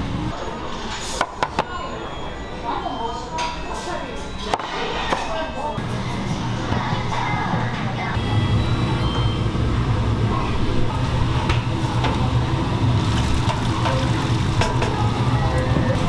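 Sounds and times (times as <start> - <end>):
broth boiling hard: 8.6 - 16.0.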